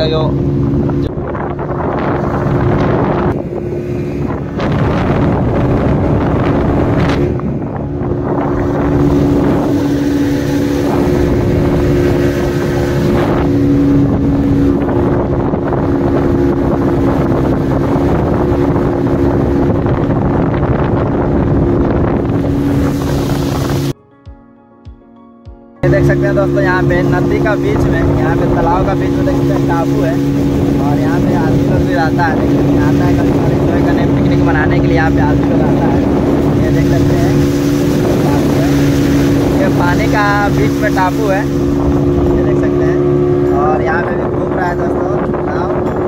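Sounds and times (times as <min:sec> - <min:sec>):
motorboat engine drone: 0:00.0 - 0:24.0, 0:25.8 - 0:46.0
water rushing past hull: 0:00.0 - 0:24.0, 0:25.8 - 0:46.0
wind buffeting microphone: 0:00.0 - 0:24.0, 0:25.8 - 0:46.0.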